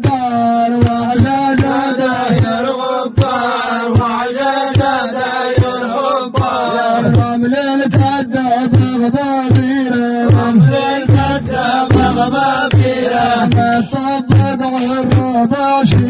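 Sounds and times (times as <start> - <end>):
man singing into a microphone: 0.0 - 16.0
regular beat: 10.4 - 13.7
held low drone note: 11.1 - 13.3.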